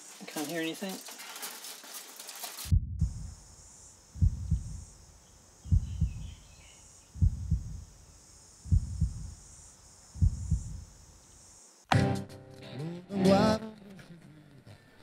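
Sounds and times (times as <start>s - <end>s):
heartbeat double thump: 2.7s - 3.4s, 4.2s - 4.8s, 5.7s - 6.4s, 7.2s - 7.9s, 8.7s - 9.4s, 10.2s - 10.9s.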